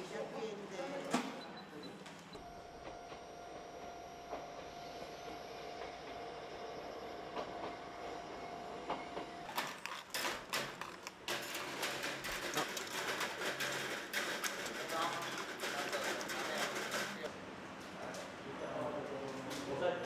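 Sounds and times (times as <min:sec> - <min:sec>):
dense clatter of clicks: 0:09.5 - 0:17.3.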